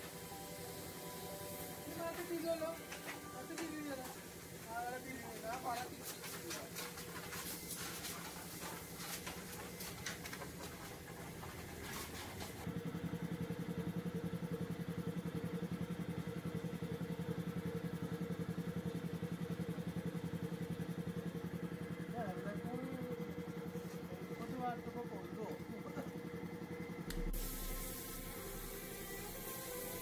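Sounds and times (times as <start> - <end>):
short hissing bursts: 0.0 - 2.8, 27.2 - 30.0
air compressor running: 0.0 - 30.0.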